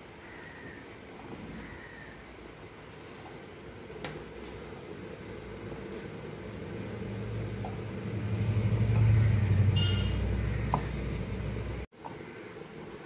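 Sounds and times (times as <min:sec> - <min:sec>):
vehicle passing rumble: 0:05.3 - 0:11.9.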